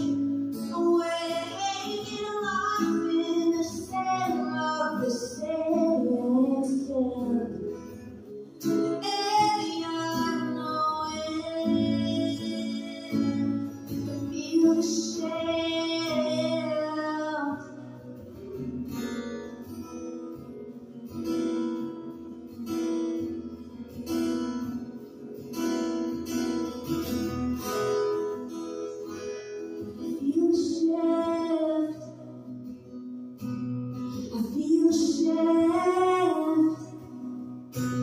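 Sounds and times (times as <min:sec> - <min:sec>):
woman singing: 0:00.0 - 0:18.7, 0:29.7 - 0:32.6, 0:34.1 - 0:38.0
acoustic guitar: 0:00.0 - 0:38.0.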